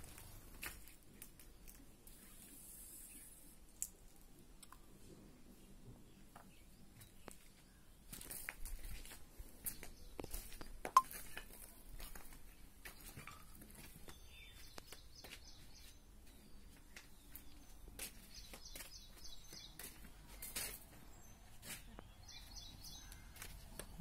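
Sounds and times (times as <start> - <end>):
footsteps scuffing on dirt: 0.0 - 1.0, 7.0 - 24.0.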